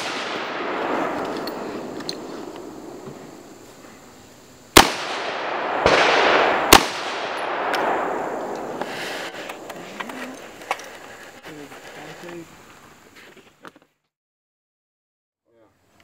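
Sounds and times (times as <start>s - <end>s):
rifle shots with long echo: 0.0s - 11.0s.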